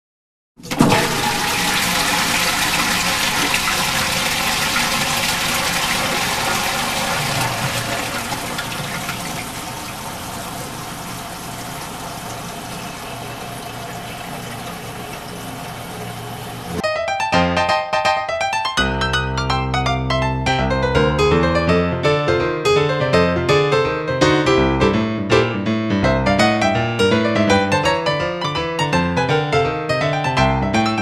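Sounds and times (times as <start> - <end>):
cistern refilling: 0.6 - 16.8
toilet flushing: 0.6 - 16.8.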